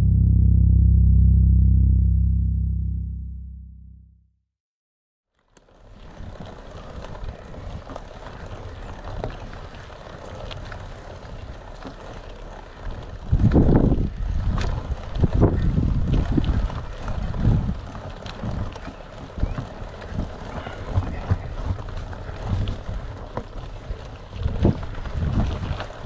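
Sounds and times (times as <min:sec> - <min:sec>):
bike tyres crunching on stony trail: 0:05.3 - 0:26.0
wind buffeting microphone: 0:12.9 - 0:26.0.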